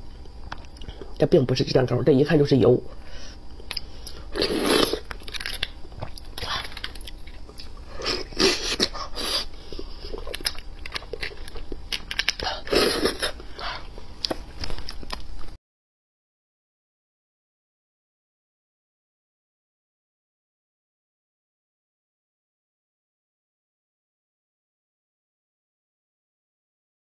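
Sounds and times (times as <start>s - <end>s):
sucking at a bone: 3.7s - 13.4s
wet chewing and smacking: 4.8s - 9.1s, 9.7s - 12.6s.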